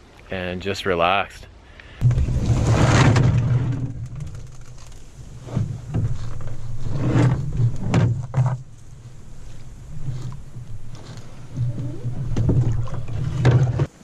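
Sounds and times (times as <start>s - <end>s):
steady low rumble: 2.0s - 13.5s
paddle strokes: 2.0s - 14.0s
paddle knocking against hull: 5.5s - 13.9s
short splashes: 9.9s - 13.9s.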